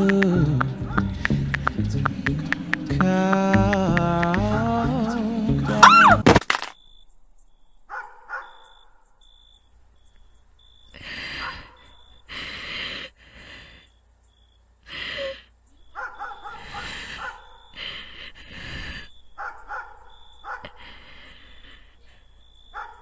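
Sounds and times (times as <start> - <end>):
high insect chirping: 0.0 - 23.0
music: 0.2 - 6.2
distant dogs barking: 7.9 - 8.8, 11.3 - 12.1, 16.0 - 17.8, 19.4 - 20.8, 22.7 - 23.0.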